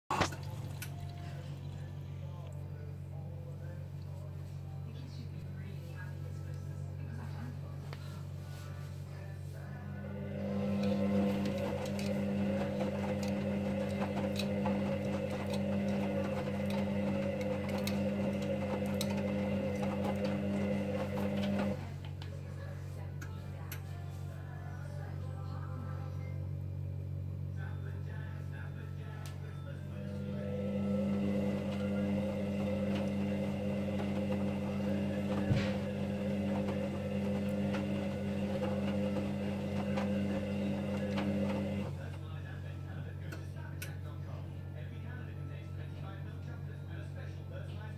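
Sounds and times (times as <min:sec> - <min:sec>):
drum tumbling wet laundry: 0:00.0 - 0:01.7, 0:10.2 - 0:22.0, 0:30.2 - 0:42.2
washing machine motor humming: 0:00.0 - 0:47.9.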